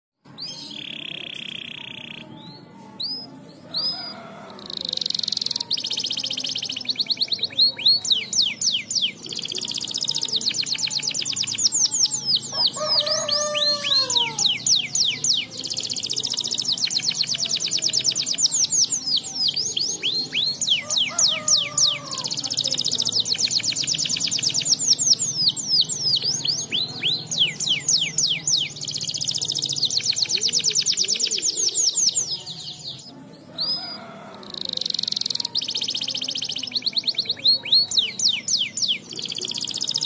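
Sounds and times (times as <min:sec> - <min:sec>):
canary singing: 0:00.3 - 0:40.0.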